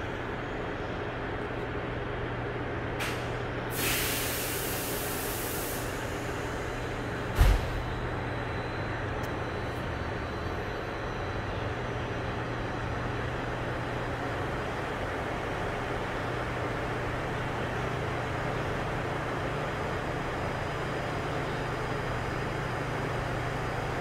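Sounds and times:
train cabin low hum: 0.0s - 24.0s
hiss of air: 3.1s - 6.7s.

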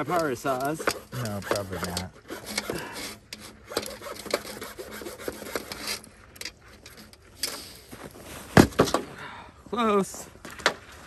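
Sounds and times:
handsaw cutting wood: 0.0s - 6.1s.

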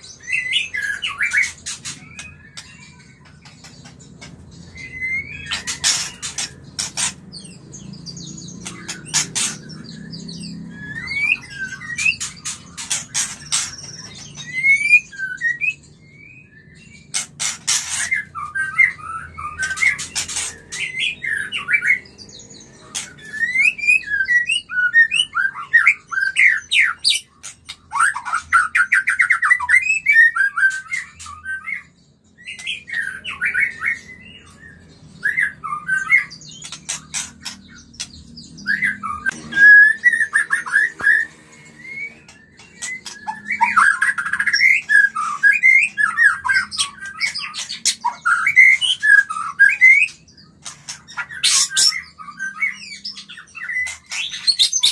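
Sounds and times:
bird singing whistles: 4.6s - 6.4s, 9.7s - 17.2s, 23.0s - 36.6s, 38.5s - 50.4s.

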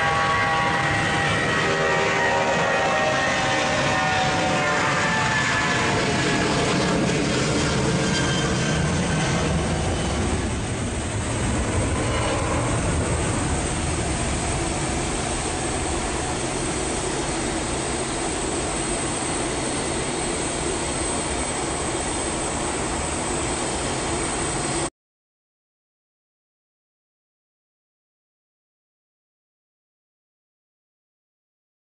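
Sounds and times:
jet engines at takeoff: 0.0s - 24.9s.

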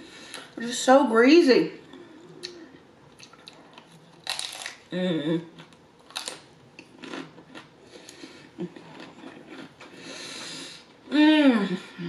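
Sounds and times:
crunchy chewing: 2.0s - 4.9s, 5.6s - 10.1s.

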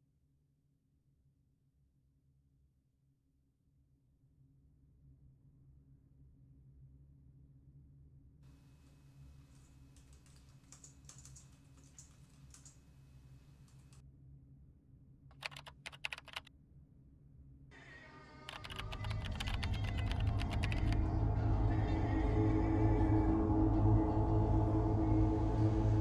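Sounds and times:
typing on laptop keyboard: 9.5s - 13.0s, 13.6s - 14.0s, 15.3s - 16.5s, 18.5s - 21.0s
music: 17.7s - 26.0s.

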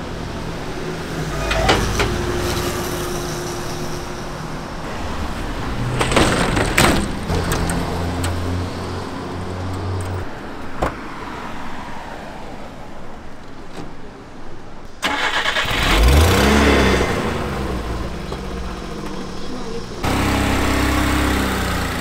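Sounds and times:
truck engine starting and running: 0.0s - 10.9s, 13.5s - 22.0s.

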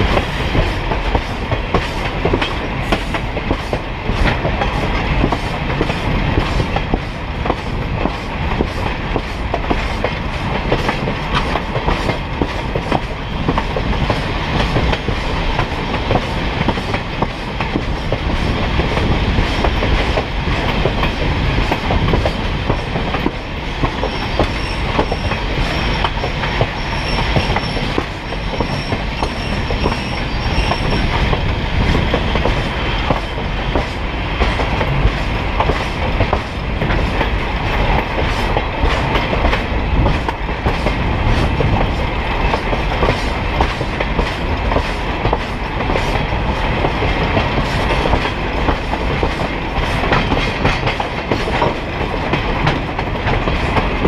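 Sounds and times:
train wheels rumbling on rails: 0.0s - 54.0s
high wheel squeal: 24.0s - 31.2s.

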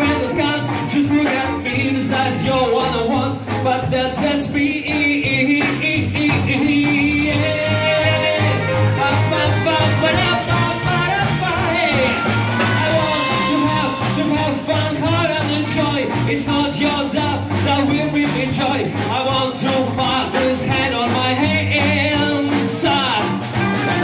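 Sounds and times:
saxophone: 0.0s - 3.7s, 6.8s - 16.4s, 21.4s - 24.0s
drums: 0.0s - 24.0s
man singing into a microphone: 0.0s - 24.0s
upright double bass: 0.0s - 24.0s
electric guitar: 5.2s - 24.0s.

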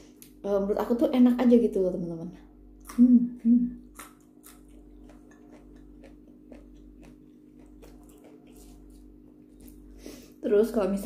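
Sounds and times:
crunching and chewing bean: 3.8s - 10.0s.

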